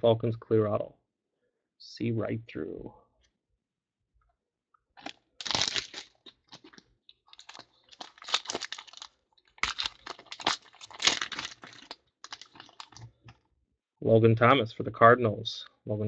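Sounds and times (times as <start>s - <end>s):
foil wrapper crinkling and tearing: 5.0s - 13.2s.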